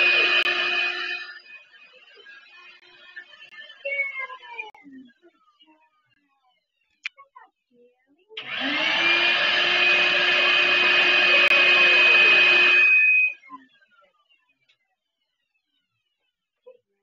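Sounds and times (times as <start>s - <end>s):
shop vacuum motor whine: 0.0s - 1.7s, 8.4s - 13.4s.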